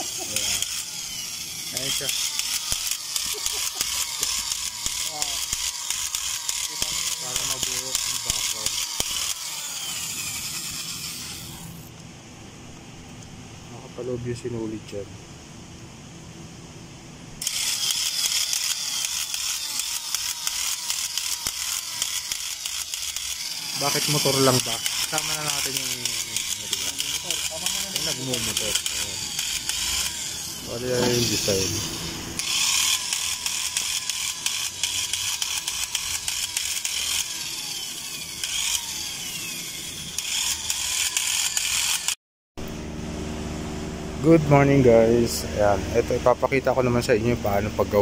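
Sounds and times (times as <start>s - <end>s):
tufting gun mechanical clatter: 0.0s - 11.9s, 17.4s - 30.3s, 32.4s - 39.0s, 40.2s - 42.2s.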